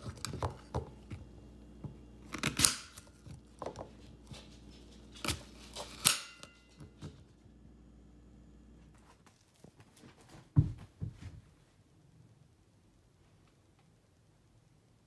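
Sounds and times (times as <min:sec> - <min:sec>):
knife slicing crisp apple: 0:02.2 - 0:04.3, 0:05.1 - 0:06.6.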